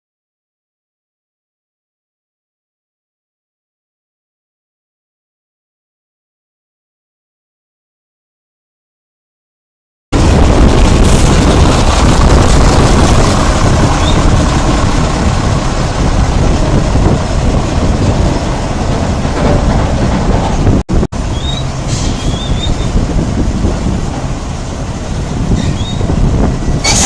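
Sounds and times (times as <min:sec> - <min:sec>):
truck rumbling and rattling: 0:10.2 - 0:27.0
short high squeaks: 0:21.3 - 0:22.9, 0:25.5 - 0:26.1.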